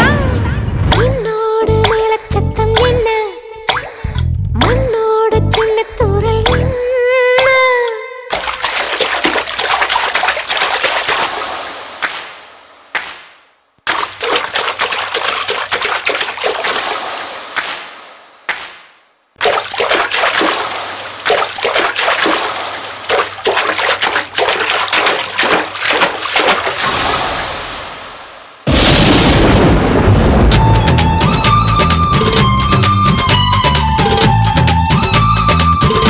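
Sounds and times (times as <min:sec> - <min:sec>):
person wading through shallow water: 0:08.3 - 0:11.2, 0:13.9 - 0:16.8, 0:19.4 - 0:28.0.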